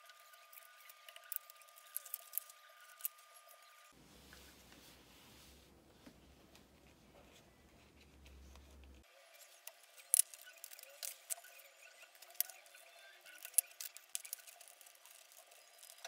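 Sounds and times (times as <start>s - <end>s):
sharp clicks taps and crinkles: 0.0s - 3.6s, 9.7s - 16.0s.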